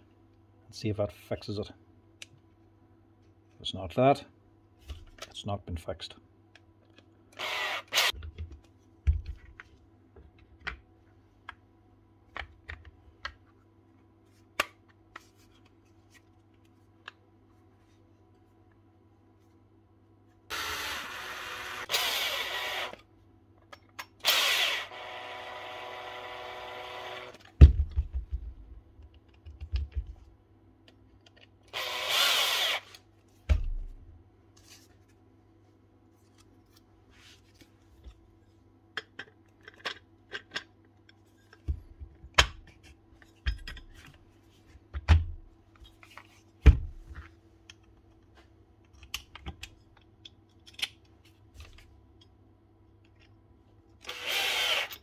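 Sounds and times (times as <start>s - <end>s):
cordless drill driving screws: 7.4s - 8.1s, 20.5s - 23.0s, 24.2s - 27.4s, 31.7s - 32.9s, 54.0s - 55.0s
tool parts clicking and knocking: 39.0s - 44.0s.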